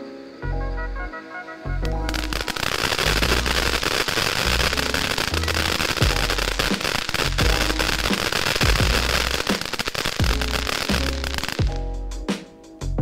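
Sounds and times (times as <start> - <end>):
firework fountain hissing and crackling: 1.9 - 11.8.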